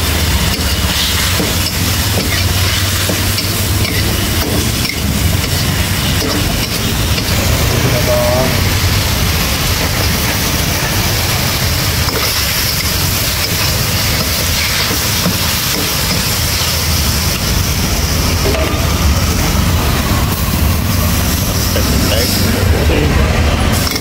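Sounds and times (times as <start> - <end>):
beef sizzling in a wok: 0.0 - 22.4, 23.7 - 24.0
metal ladle scraping wok: 0.1 - 18.9, 23.7 - 24.0.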